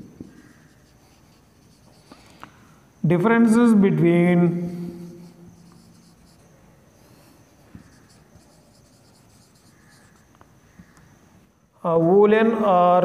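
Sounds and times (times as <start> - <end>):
marker writing on whiteboard: 0.0 - 2.3, 4.9 - 6.5, 7.5 - 11.0.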